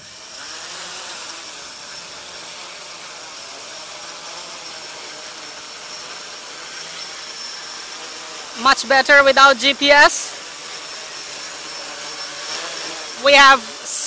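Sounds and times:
quadcopter propellers whirring: 0:00.0 - 0:14.0.

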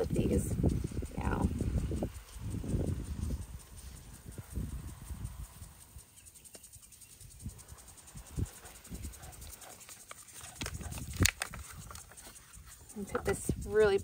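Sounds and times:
hands patting potting soil: 0:09.1 - 0:14.0.

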